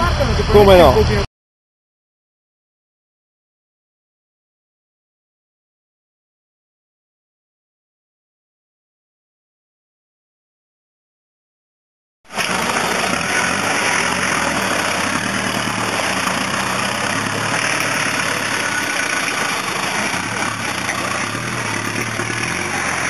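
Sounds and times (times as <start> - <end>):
off-road vehicle engine running: 0.0 - 1.3, 12.3 - 23.0.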